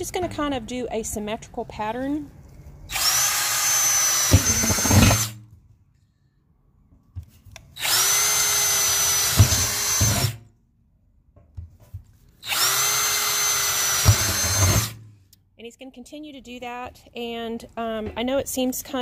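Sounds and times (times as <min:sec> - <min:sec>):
drill whining through steel: 0:02.9 - 0:05.4, 0:07.8 - 0:10.5, 0:12.4 - 0:15.1.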